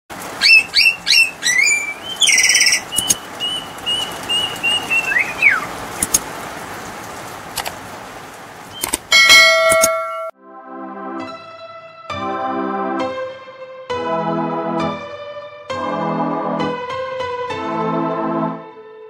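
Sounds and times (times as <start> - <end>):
songbird whistling: 0.4 - 5.8
sharp clicks: 2.9 - 3.2, 6.0 - 6.3, 8.8 - 9.1.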